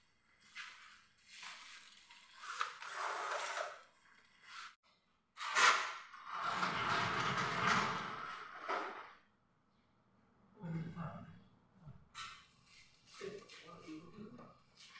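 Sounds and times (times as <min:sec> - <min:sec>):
folding door rollers rattling: 0:06.2 - 0:08.8.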